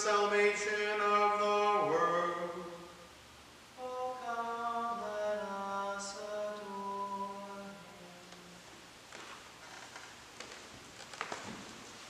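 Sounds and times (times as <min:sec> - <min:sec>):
person singing a chant-like hymn: 0:00.0 - 0:03.1, 0:03.8 - 0:08.6.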